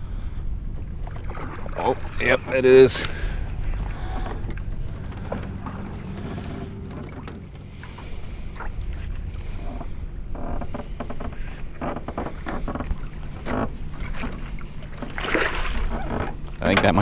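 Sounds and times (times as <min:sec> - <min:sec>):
low hum from boat: 0:00.0 - 0:17.0
water splashing: 0:00.9 - 0:10.0, 0:13.8 - 0:16.6.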